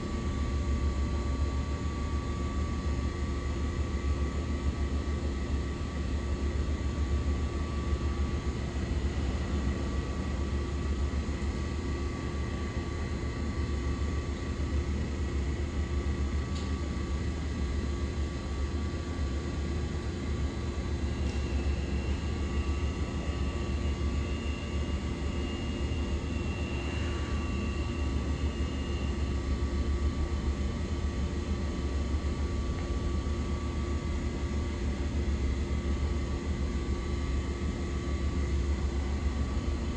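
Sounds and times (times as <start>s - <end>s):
subway station rumble: 0.0s - 39.9s
faint whining tones: 20.2s - 30.0s.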